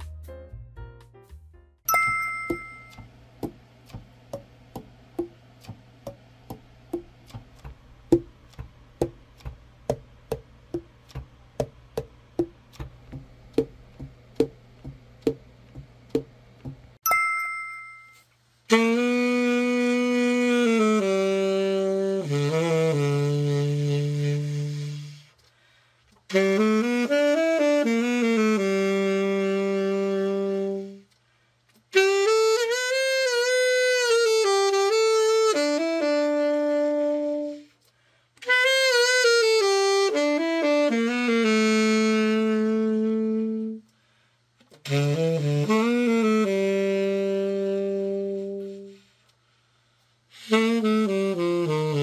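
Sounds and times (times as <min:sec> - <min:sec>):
tenor saxophone phrases: 0:18.7 - 0:25.3, 0:26.3 - 0:31.1, 0:31.9 - 0:37.8, 0:38.4 - 0:43.9, 0:44.8 - 0:49.1, 0:50.3 - 0:52.0.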